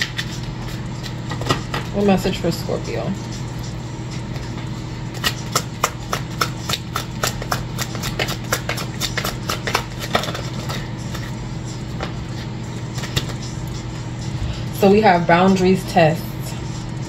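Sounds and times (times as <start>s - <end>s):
steady low hum: 0.0s - 17.0s
cards shuffled with snaps: 5.2s - 11.2s.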